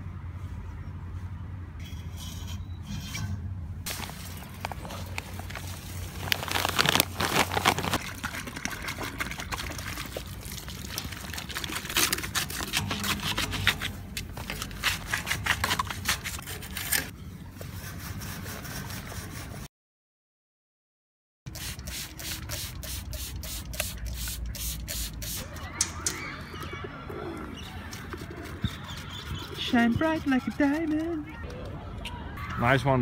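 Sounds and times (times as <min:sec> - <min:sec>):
bag rustling: 0:03.9 - 0:08.1
concrete mix pouring: 0:03.9 - 0:13.8.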